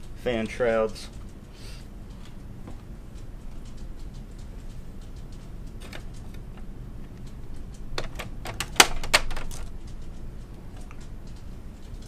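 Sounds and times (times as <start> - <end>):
plastic clicks and knocks: 8.0 - 9.7.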